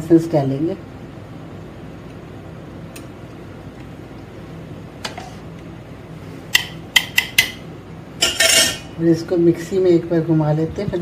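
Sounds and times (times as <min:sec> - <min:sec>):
low background hum: 0:00.0 - 0:11.0
metal spoon clinking on steel jar: 0:08.2 - 0:08.8.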